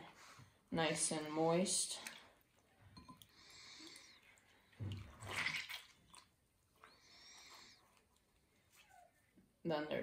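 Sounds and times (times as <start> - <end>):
water sloshing and dripping: 1.0 - 7.8.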